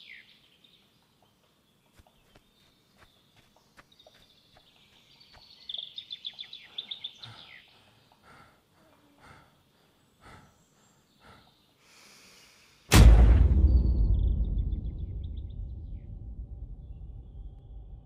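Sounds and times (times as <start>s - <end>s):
bird chirping: 0.0s - 12.8s, 13.6s - 18.0s
booming impact with low rumble: 12.9s - 18.0s.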